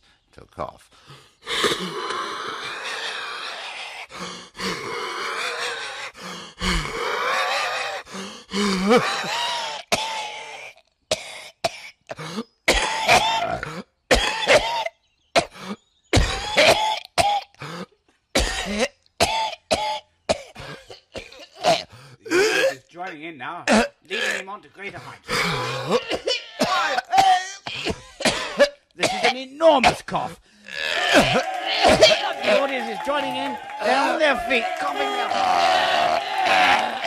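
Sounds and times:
man coughing: 12.7 - 22.9, 23.7 - 32.7.

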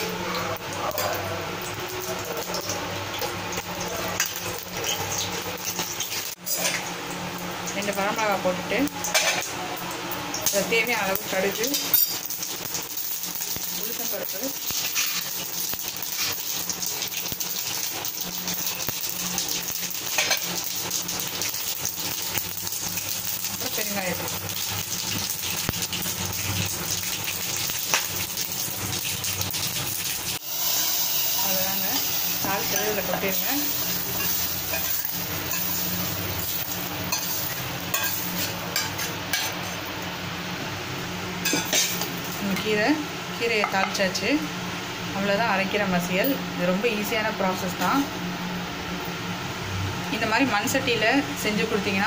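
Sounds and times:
hot oil sizzling and popping: 0.0 - 40.2.

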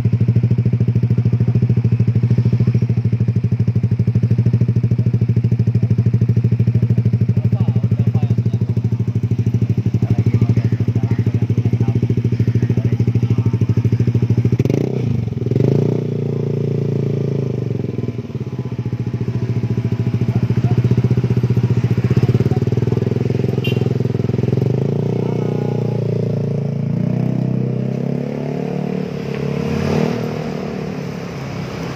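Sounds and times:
scooter engine idling: 0.0 - 29.1
scooter throttle blip: 23.5 - 24.2.

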